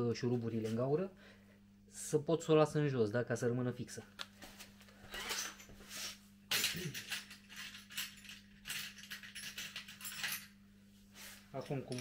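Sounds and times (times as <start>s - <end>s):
metal pieces clinking and rattling: 6.5s - 10.5s, 11.6s - 12.0s.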